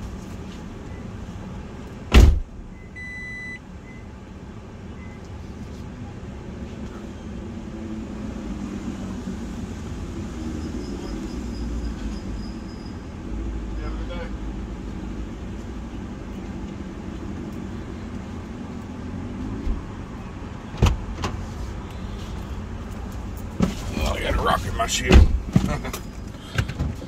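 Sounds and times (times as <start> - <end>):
low car rumble: 0.0 - 27.0
car door shutting: 2.1 - 2.5, 20.7 - 21.4, 25.0 - 27.0
short electronic car chime: 2.8 - 3.6.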